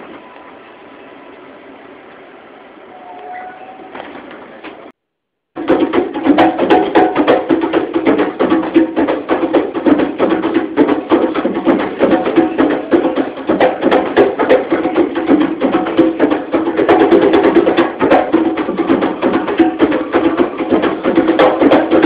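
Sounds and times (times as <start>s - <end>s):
hand drums in fast rhythm: 5.6s - 22.0s.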